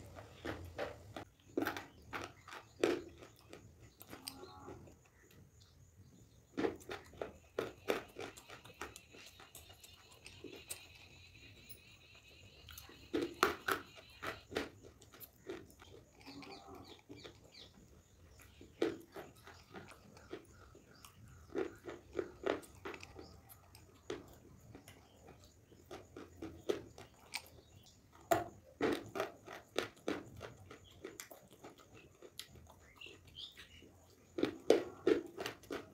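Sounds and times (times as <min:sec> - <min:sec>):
chewing: 0:00.0 - 0:35.9.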